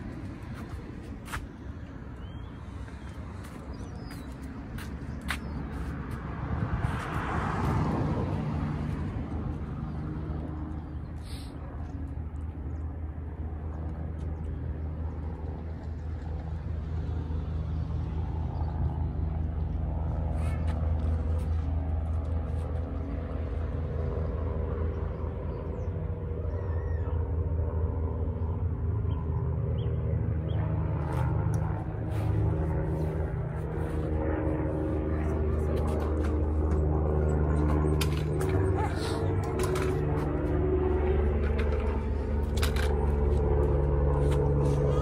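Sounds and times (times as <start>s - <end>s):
vehicle engine hum: 0.0s - 45.0s
car passing: 5.6s - 11.5s.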